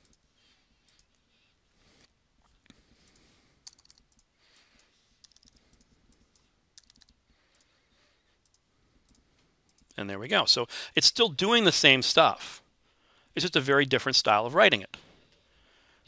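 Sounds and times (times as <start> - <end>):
computer keyboard typing: 3.0 - 7.7.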